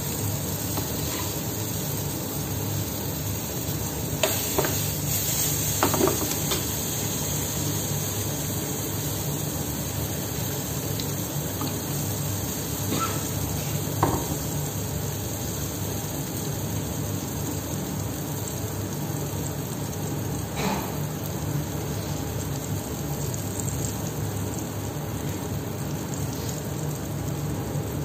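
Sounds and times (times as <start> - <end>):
food sizzling in pan: 0.0 - 28.0.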